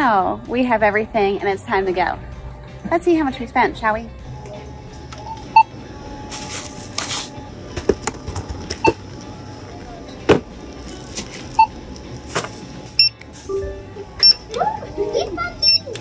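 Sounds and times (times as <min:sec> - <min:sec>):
faint music: 0:00.0 - 0:16.0
plastic bag rustling: 0:06.3 - 0:07.4, 0:10.7 - 0:11.6
scanner beeping: 0:13.0 - 0:14.4, 0:15.6 - 0:15.9.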